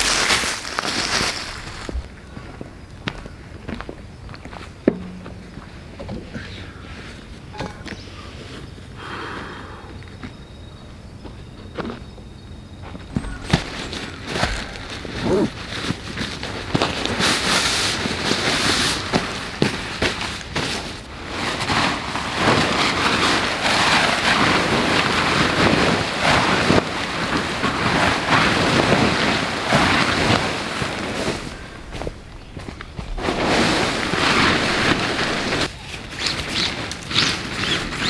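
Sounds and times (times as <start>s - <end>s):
nylon fabric rustling: 13.2s - 31.6s, 33.0s - 38.0s.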